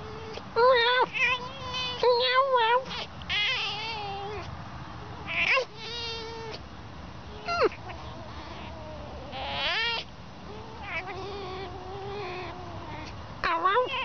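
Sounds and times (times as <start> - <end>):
fox whining calls: 2.8 - 6.6, 7.3 - 14.0.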